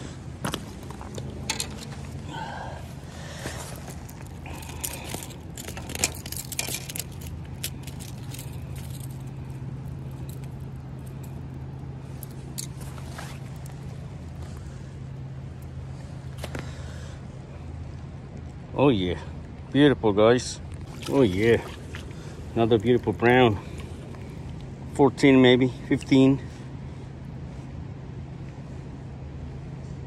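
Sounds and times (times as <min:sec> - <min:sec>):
steady low hum: 0:00.0 - 0:30.0
fish handling in landing net: 0:00.4 - 0:14.7, 0:20.7 - 0:24.8.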